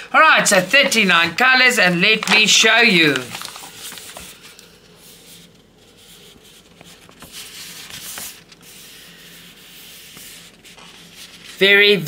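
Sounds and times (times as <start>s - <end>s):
paper rustling: 0.3s - 12.0s.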